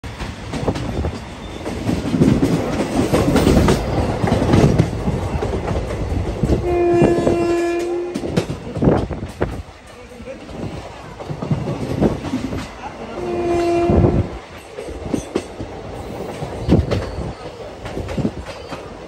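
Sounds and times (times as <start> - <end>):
train wheels rumbling on rails: 0.0 - 19.0
wheels clacking over rail joints: 0.1 - 19.0
train horn: 6.6 - 8.4, 13.2 - 14.3.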